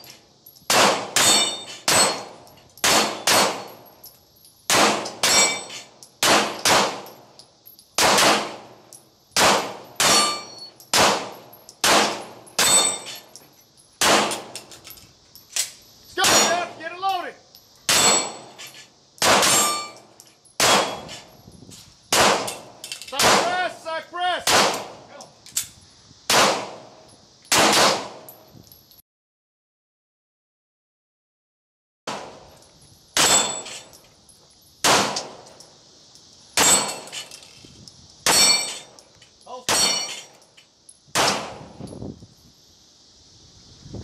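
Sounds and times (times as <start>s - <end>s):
pistols firing: 0.7s - 3.7s, 4.7s - 5.5s, 6.2s - 7.1s, 8.0s - 8.6s, 9.4s - 10.3s, 10.9s - 12.8s, 14.0s - 14.5s, 19.2s - 19.6s, 20.6s - 21.0s, 22.1s - 23.5s, 24.4s - 25.0s, 26.3s - 26.8s, 27.5s - 28.2s, 34.8s - 35.4s, 41.2s - 41.6s
steel plates clanging: 1.2s - 7.9s, 10.0s - 21.3s, 33.2s - 34.1s, 36.5s - 37.6s, 38.2s - 40.8s.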